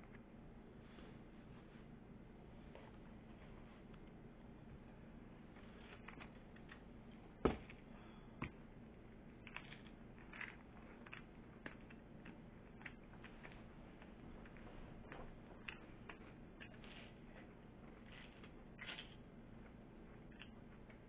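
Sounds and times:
crunchy cookie eating: 9.2s - 21.0s.

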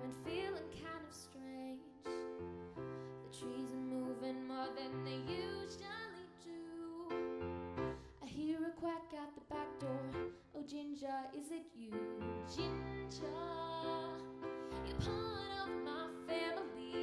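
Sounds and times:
woman singing: 0.0s - 2.4s, 3.2s - 7.4s, 8.2s - 17.0s
piano chords: 0.0s - 10.7s, 11.8s - 17.0s.

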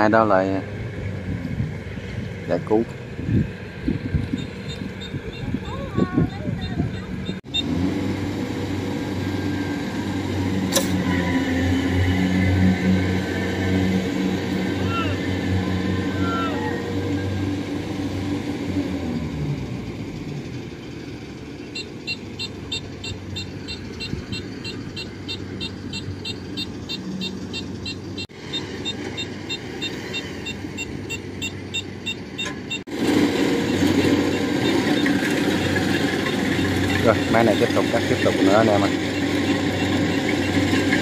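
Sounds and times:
combine harvester diesel engines: 0.0s - 41.0s
high rapid beeping: 21.7s - 32.8s.

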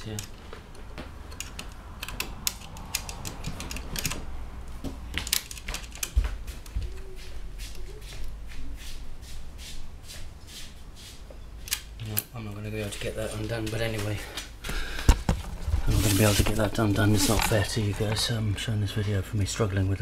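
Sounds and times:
clicks and taps of metal parts: 0.0s - 6.8s.

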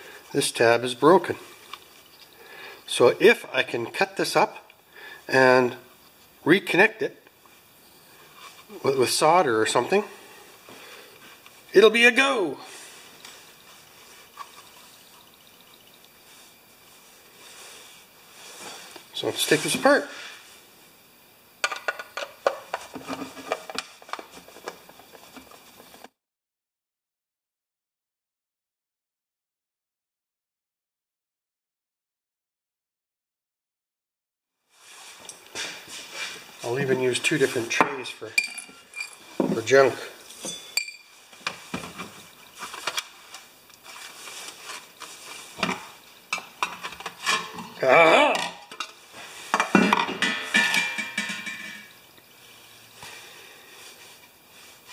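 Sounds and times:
sheet metal parts clinking: 38.4s - 39.7s, 40.3s - 41.2s, 49.5s - 51.9s.

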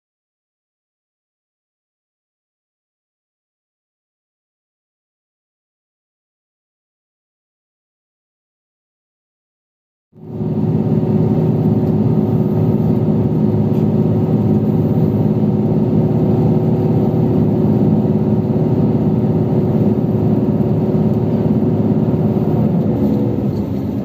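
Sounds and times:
large engine droning: 10.2s - 24.0s.

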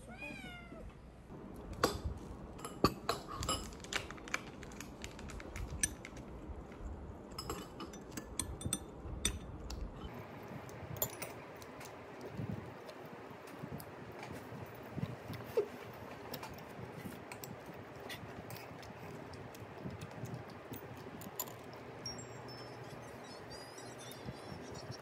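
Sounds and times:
chopsticks and spoon clinking on bowl: 7.4s - 9.5s, 11.0s - 12.0s.

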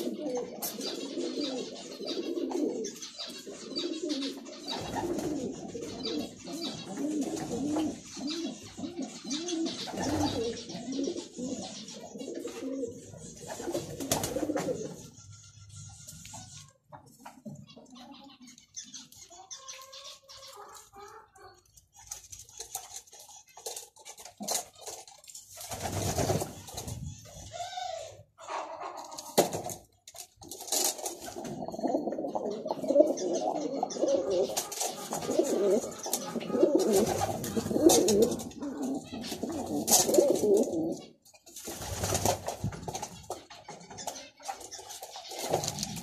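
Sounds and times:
pigeons cooing: 0.0s - 46.0s.

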